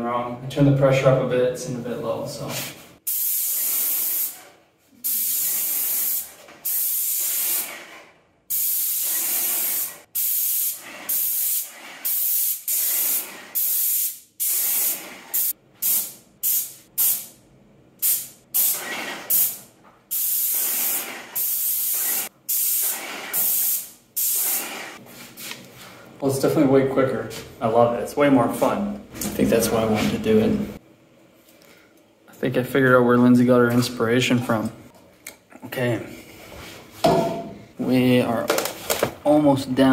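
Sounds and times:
paint sprayer hissing bursts: 3.1 - 17.3, 18.0 - 25.0.

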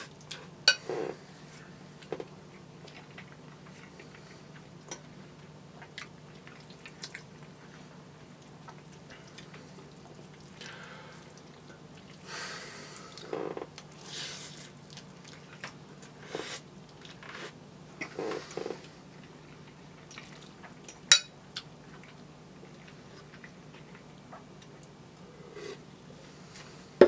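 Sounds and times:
wet chewing: 13.8 - 16.2.

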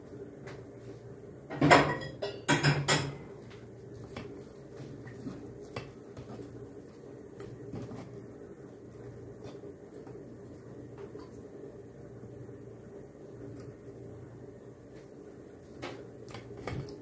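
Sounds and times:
low steady hum: 0.0 - 17.0
metal pots and utensils clanking: 1.5 - 3.2.

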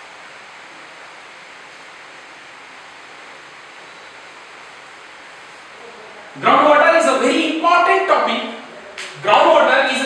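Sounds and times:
rainfall hiss: 0.0 - 10.0
faint high steady tone: 3.7 - 4.4.

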